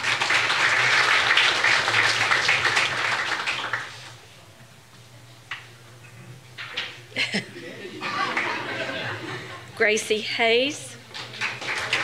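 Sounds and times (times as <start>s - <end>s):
audience applauding: 0.0s - 4.2s, 8.2s - 9.1s, 11.2s - 12.0s.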